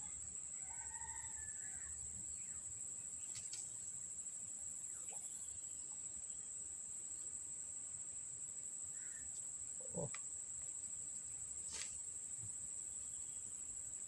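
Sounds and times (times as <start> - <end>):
insects droning: 0.0 - 14.0
loud insect call: 0.0 - 14.0.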